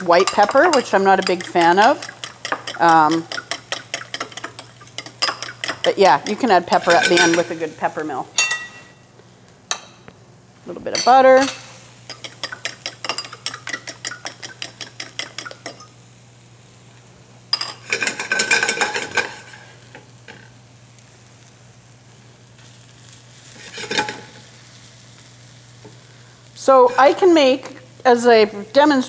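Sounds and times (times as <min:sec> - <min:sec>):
spatula stirring: 0:00.0 - 0:07.8, 0:11.4 - 0:15.9
pan scraping on burner grate: 0:00.0 - 0:08.9, 0:17.7 - 0:19.9, 0:23.5 - 0:24.5, 0:26.6 - 0:27.8
onions sizzling in pan: 0:00.0 - 0:29.0
fork whisking eggs in bowl: 0:00.1 - 0:07.5, 0:12.1 - 0:15.8.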